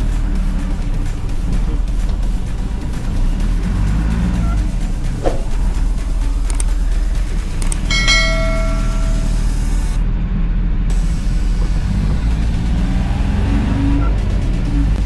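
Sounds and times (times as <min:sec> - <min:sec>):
diesel engine running: 0:00.0 - 0:15.0
short ringing tone: 0:07.9 - 0:09.8.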